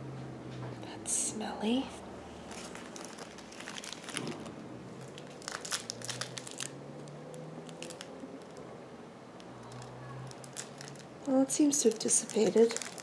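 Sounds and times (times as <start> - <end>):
plastic packaging crinkling: 2.4 - 8.7, 9.4 - 13.0.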